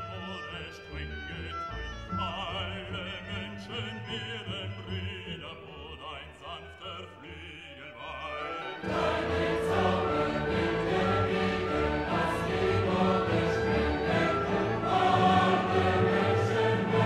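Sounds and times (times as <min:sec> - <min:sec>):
operatic voice with accompaniment: 0:00.0 - 0:11.1.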